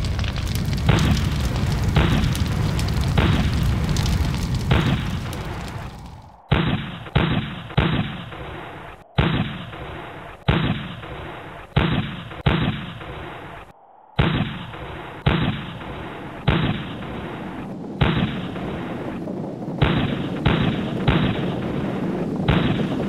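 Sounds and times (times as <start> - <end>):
gunshots echoing: 6.5 - 17.2.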